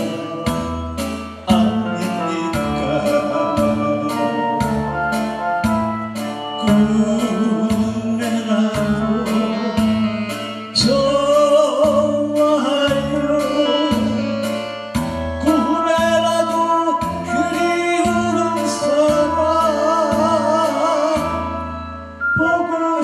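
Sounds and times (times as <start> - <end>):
backing track with bass beat: 0.0 - 23.0
man singing into a microphone: 0.0 - 23.0.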